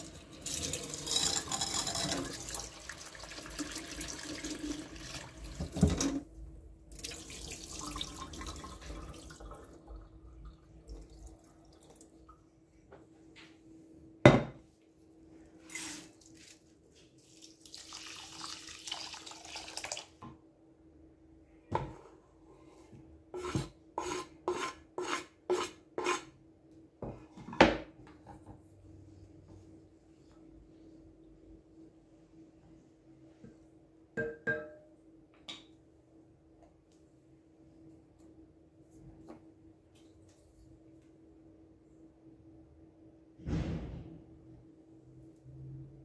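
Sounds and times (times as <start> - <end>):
water pouring into glass bowl: 0.0 - 5.6, 7.0 - 12.1, 17.6 - 20.1.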